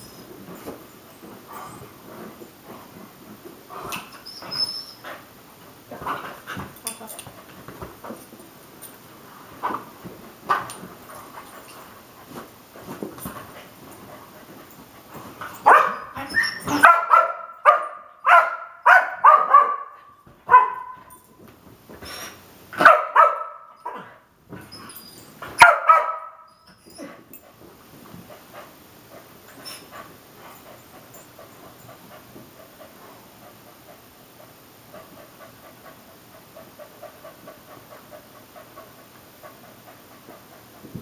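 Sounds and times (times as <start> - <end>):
dog barking: 15.7 - 16.0, 16.7 - 21.0, 22.8 - 23.7, 25.6 - 26.5.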